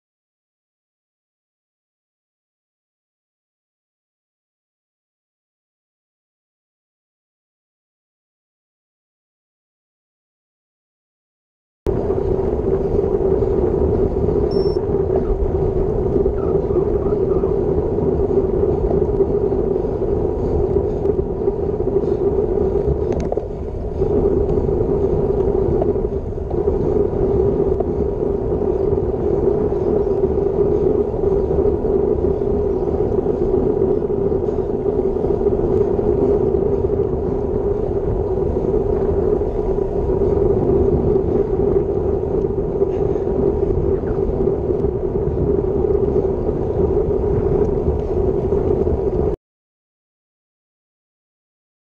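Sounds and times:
bicycle road noise: 11.9 - 49.4
wind noise: 11.9 - 49.4.

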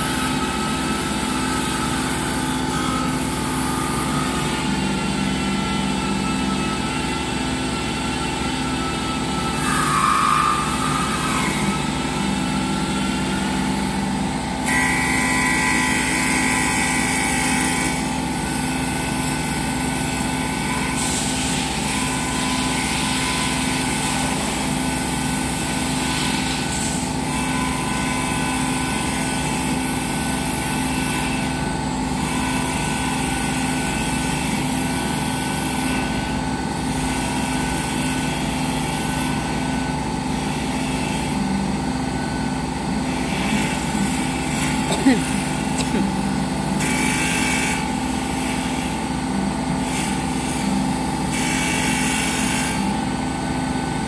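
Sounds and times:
wood lathe running: 0.0 - 54.0
cutter hissing on wood: 43.2 - 46.2.

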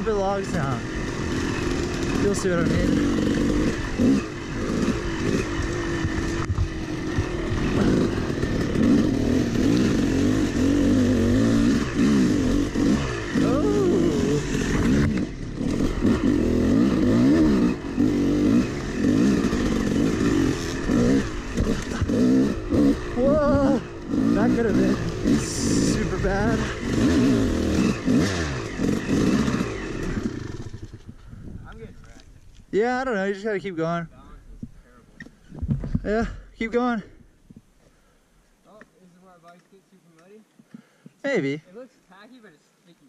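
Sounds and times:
dirt bike engine revving: 0.0 - 31.4.

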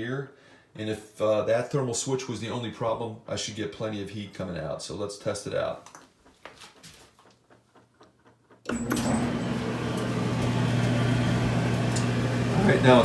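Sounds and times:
clothes dryer running: 8.7 - 13.0.

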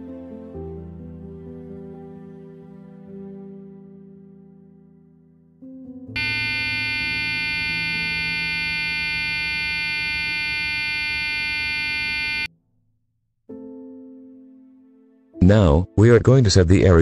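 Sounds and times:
brief lower tone: 6.2 - 12.5
electronic warning buzz: 6.2 - 12.5.

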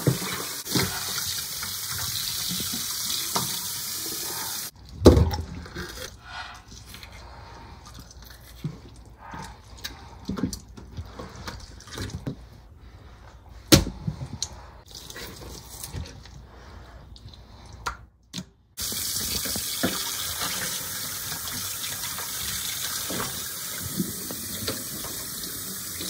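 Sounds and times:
tap water running into sink: 0.0 - 4.7, 18.8 - 26.0.

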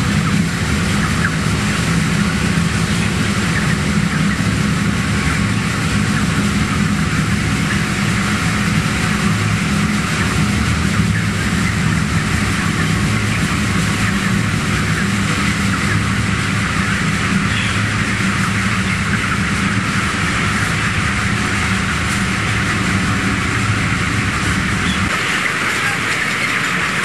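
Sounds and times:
chicks cheeping: 0.0 - 27.0
ventilation fans humming: 0.0 - 27.0.

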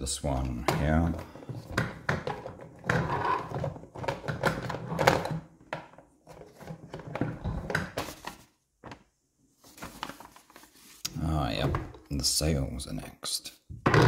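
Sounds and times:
rustling: 9.6 - 11.1.

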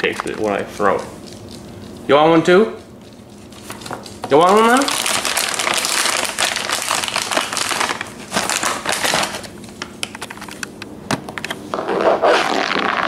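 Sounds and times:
plastic bag crinkling: 3.0 - 10.5.

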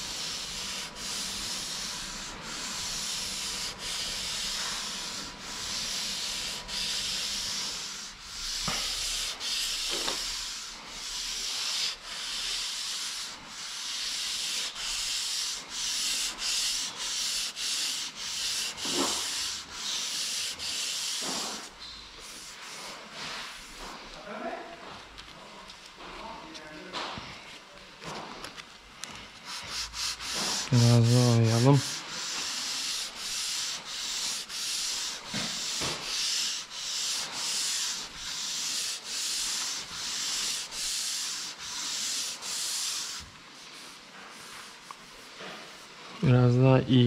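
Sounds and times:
sandpaper rubbing: 0.0 - 24.2, 29.2 - 45.9.

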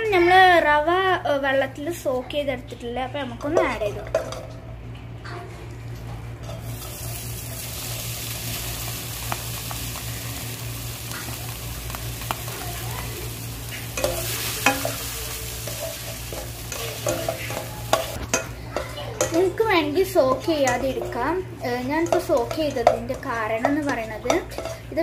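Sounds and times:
semolina sizzling in hot fat: 6.5 - 25.0
spatula scraping and tapping pan: 13.7 - 25.0.

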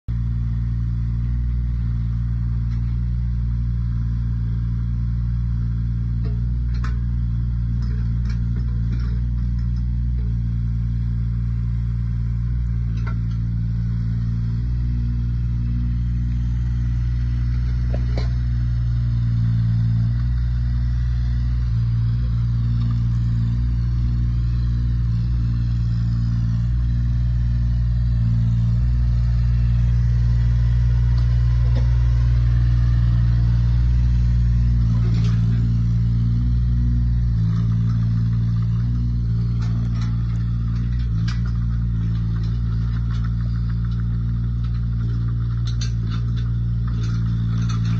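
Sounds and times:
small diesel excavator engine: 0.0 - 47.9.

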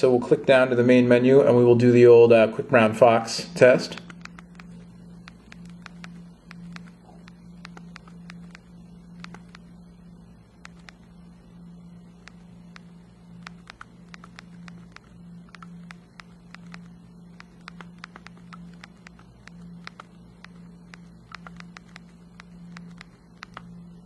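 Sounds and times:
steady low hum: 0.0 - 24.0
touchscreen clicking: 3.9 - 9.6, 10.6 - 11.0, 12.2 - 23.7.

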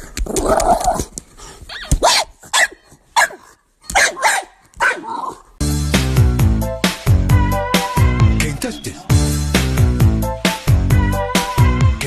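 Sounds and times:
dog barking and yipping: 1.7 - 5.5.

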